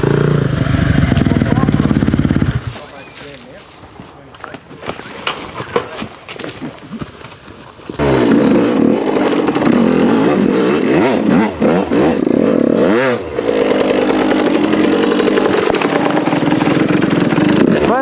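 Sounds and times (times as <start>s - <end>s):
dirt bike engine revving: 0.0s - 2.8s, 8.0s - 18.0s.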